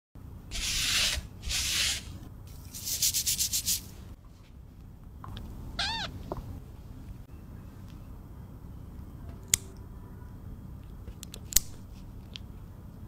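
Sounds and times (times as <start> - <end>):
cat mewing: 5.8 - 6.2.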